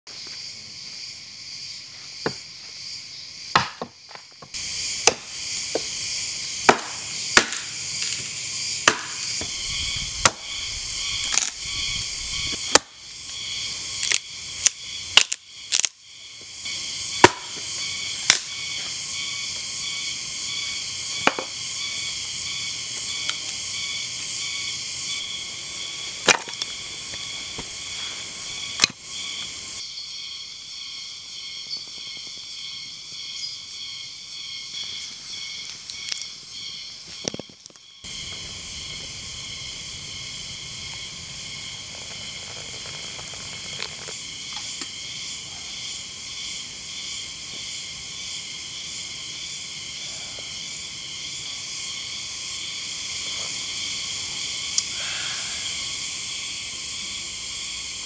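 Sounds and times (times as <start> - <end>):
hatchet chopping wood: 3.5 - 4.0, 5.0 - 5.9, 6.6 - 7.8, 8.8 - 9.5, 10.2 - 10.6, 12.6 - 13.0, 17.2 - 17.6, 21.2 - 21.5, 26.3 - 26.6.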